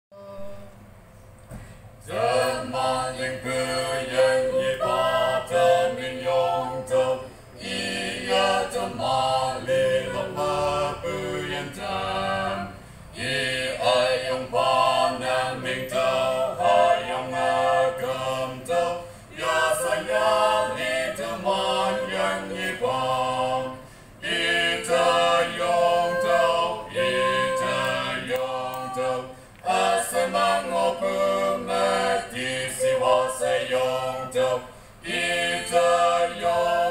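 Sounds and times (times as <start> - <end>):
vocal quartet singing: 0.2 - 0.9, 1.9 - 36.9.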